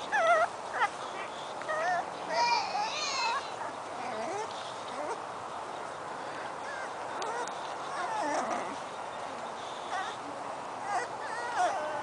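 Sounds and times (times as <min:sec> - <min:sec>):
puppies whimpering squeaks: 0:00.0 - 0:05.2, 0:06.4 - 0:12.0.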